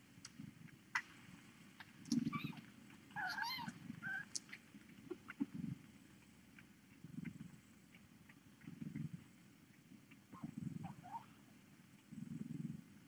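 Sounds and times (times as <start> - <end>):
small clicks and rustle: 0.2 - 12.8
kittens mewing: 2.1 - 4.5.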